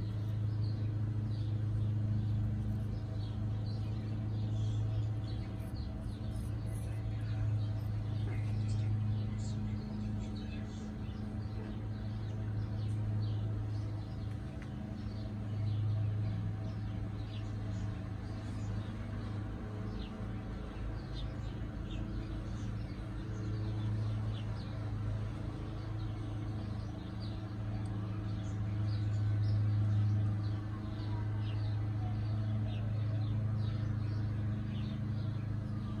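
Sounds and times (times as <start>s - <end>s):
low machine hum: 0.0s - 36.0s.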